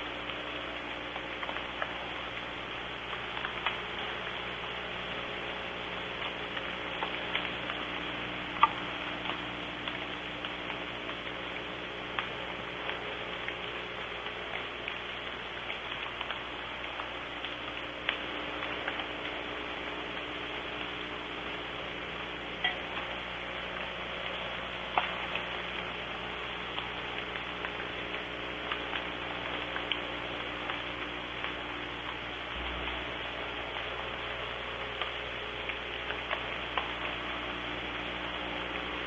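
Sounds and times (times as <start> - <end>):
faint electrical hum: 0.0 - 39.0
single raindrops ticking: 0.0 - 39.0
soft rain hissing: 0.0 - 39.0.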